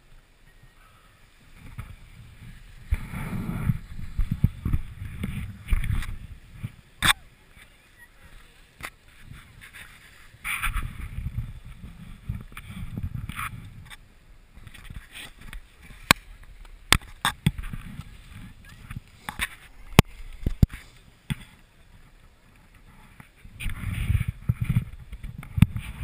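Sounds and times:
camera handling rumble: 2.9 - 6.2.

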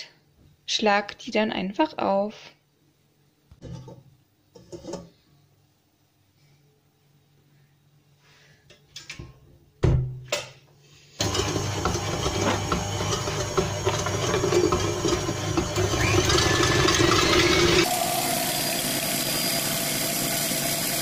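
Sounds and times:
mixer head clunk: 11.2 - 17.8
stand mixer motor running: 11.2 - 21.0
whisk beating mixture: 11.2 - 21.0.

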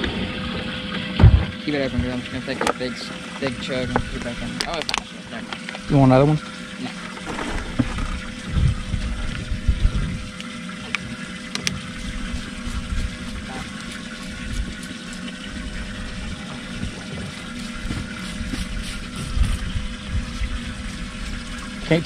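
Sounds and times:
electric motor humming: 0.0 - 22.0
water sloshing: 0.0 - 22.0
low rumble: 7.2 - 10.4.

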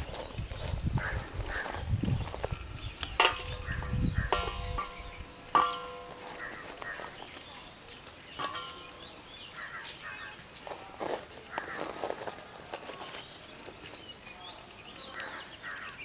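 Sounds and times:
soft rustling of chillies: 6.1 - 8.9, 9.7 - 16.0.

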